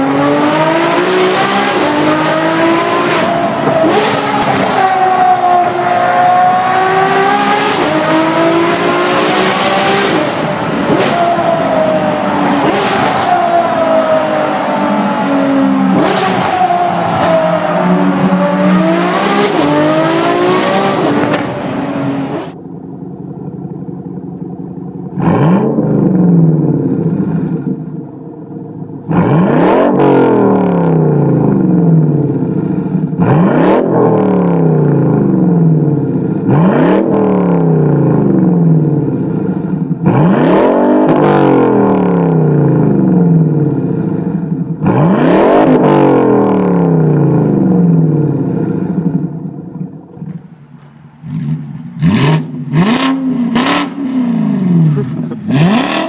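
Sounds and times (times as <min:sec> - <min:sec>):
car engine accelerating: 0:00.0 - 0:56.0
car exhaust idling and revving: 0:00.0 - 0:56.0.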